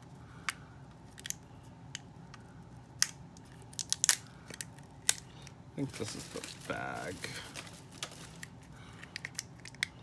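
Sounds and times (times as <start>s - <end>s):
plastic packaging clicking and crinkling: 3.0s - 10.0s.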